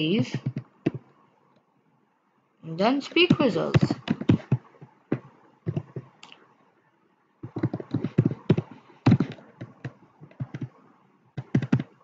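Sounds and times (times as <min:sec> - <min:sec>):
typing on computer keyboard: 0:07.4 - 0:10.8, 0:11.4 - 0:12.0.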